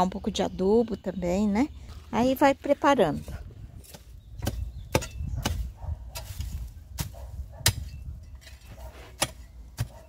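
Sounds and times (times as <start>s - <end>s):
hoe chopping into soil: 3.2s - 10.0s.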